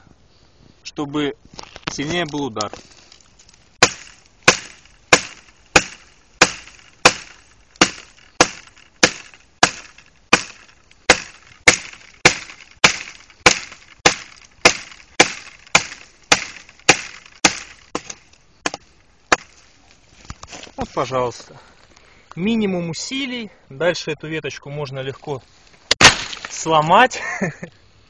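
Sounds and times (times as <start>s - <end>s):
knife chopping wooden branch: 3.8s - 19.6s.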